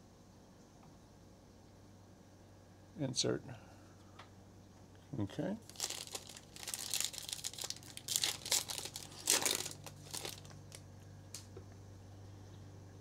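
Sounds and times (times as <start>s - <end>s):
plastic wrapper crinkling and tearing: 5.6s - 11.5s.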